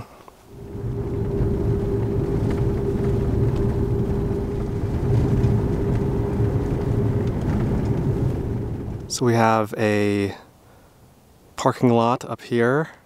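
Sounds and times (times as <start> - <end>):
car engine and tyre drone: 0.4 - 9.6.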